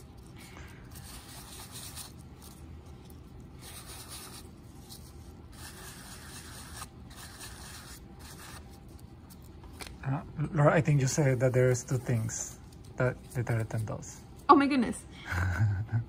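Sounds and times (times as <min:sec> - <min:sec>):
cloth rubbing on plate: 0:03.6 - 0:09.1.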